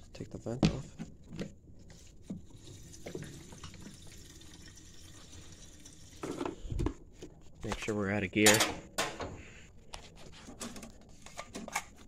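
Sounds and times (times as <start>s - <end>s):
gasoline pouring into tank: 2.4s - 6.6s.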